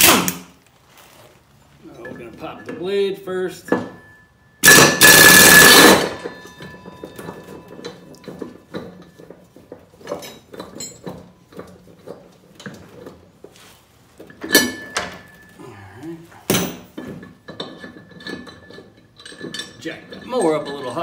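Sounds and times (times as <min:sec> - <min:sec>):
metallic clinks and knocks: 0:05.6 - 0:13.3, 0:14.2 - 0:15.6, 0:16.5 - 0:21.0.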